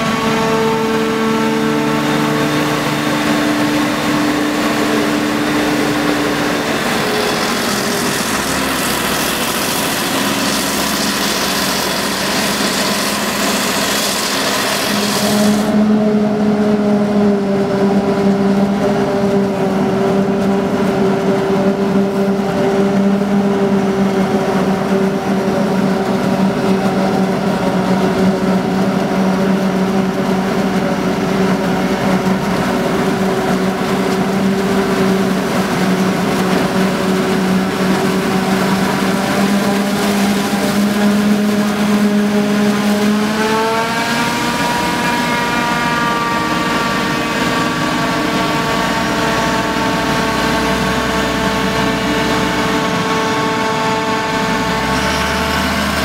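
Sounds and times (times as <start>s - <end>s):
harvester engine drone: 0.0s - 56.0s
hiss of crop through machine: 6.8s - 15.8s.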